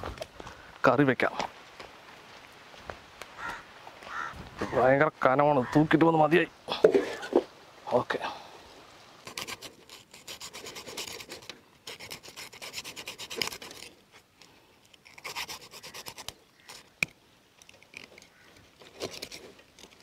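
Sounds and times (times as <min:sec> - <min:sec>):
knife scraping fish scales: 0:09.2 - 0:14.0, 0:14.9 - 0:16.9, 0:17.9 - 0:20.0.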